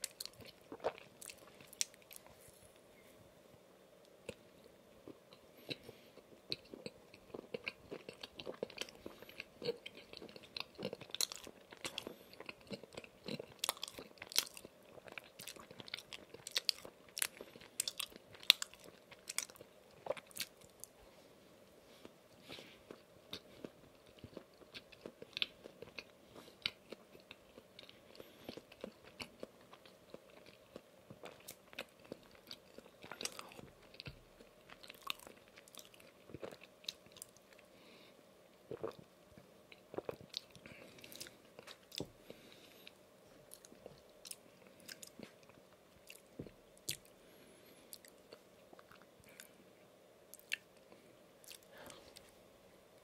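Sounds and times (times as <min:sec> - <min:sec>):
chewing with wet mouth smacks: 0:50.3 - 0:50.7.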